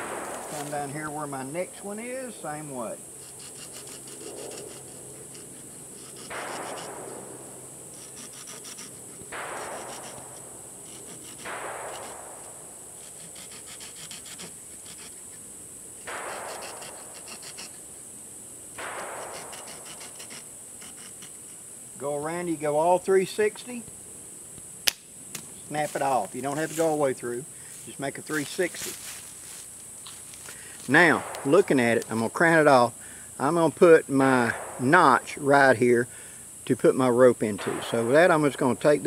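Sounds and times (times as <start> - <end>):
saw blade cutting wood: 3.2 - 7.2, 7.9 - 12.3, 13.0 - 15.4, 16.0 - 17.8, 18.8 - 21.6.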